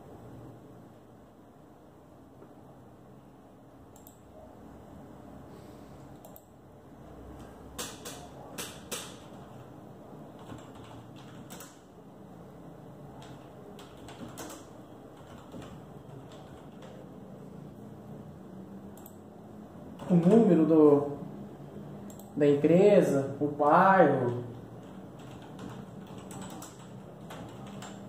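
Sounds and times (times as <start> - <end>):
keyboard keystroke clicks: 3.9 - 4.2
loud keyboard clacks: 7.4 - 9.7, 10.4 - 11.9, 13.2 - 17.0, 24.8 - 28.0.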